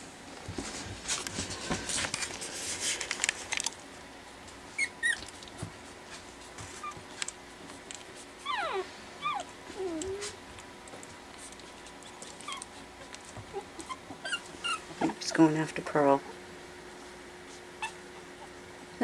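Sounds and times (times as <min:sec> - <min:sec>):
puppies scuffling on blankets: 0:00.0 - 0:16.2, 0:16.8 - 0:18.4
puppies squeaking: 0:04.7 - 0:05.6, 0:06.8 - 0:07.0, 0:08.4 - 0:10.4, 0:11.8 - 0:15.2, 0:17.8 - 0:18.6
puppies whining: 0:04.7 - 0:05.7, 0:06.6 - 0:15.2, 0:17.5 - 0:18.7.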